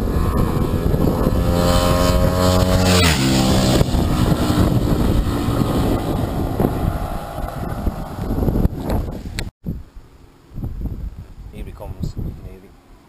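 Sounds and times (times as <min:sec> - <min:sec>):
motorcycle passing at speed: 0:00.0 - 0:09.5
wind on microphone: 0:00.0 - 0:12.8.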